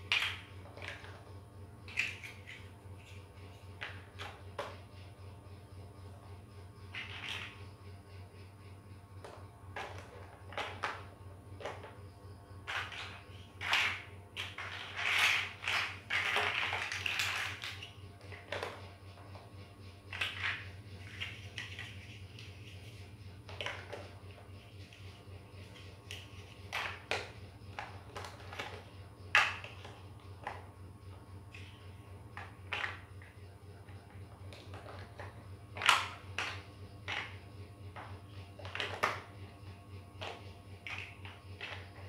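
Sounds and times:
plastic toy blocks clicking: 0:00.0 - 0:01.2, 0:01.9 - 0:03.2, 0:06.9 - 0:07.6, 0:09.8 - 0:12.0, 0:12.6 - 0:18.8, 0:20.1 - 0:22.0, 0:26.1 - 0:30.7, 0:32.4 - 0:33.3, 0:34.0 - 0:39.3, 0:40.2 - 0:42.0
toy blocks rattling clatter: 0:00.0 - 0:01.3, 0:01.9 - 0:04.8, 0:06.9 - 0:07.6, 0:09.8 - 0:12.0, 0:12.6 - 0:18.9, 0:20.1 - 0:30.7, 0:31.5 - 0:39.4, 0:40.2 - 0:42.0.

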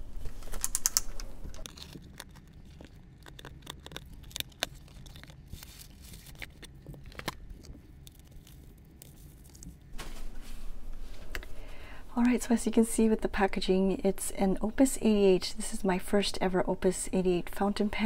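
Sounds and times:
packing paper rustling: 0:00.1 - 0:10.5.

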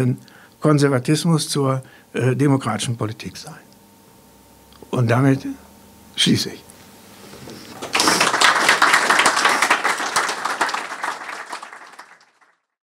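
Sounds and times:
audience applauding: 0:07.7 - 0:12.7.

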